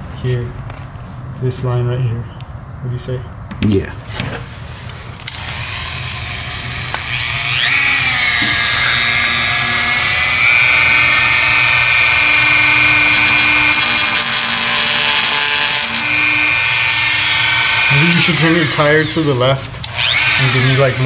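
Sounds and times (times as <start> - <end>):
rotary tool cutting plastic: 5.2 - 21.0.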